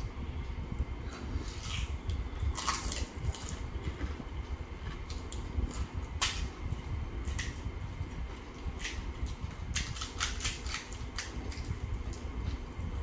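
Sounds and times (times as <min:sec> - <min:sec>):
low steady hum: 0:00.0 - 0:13.0
crisp shells cracking: 0:09.7 - 0:11.7.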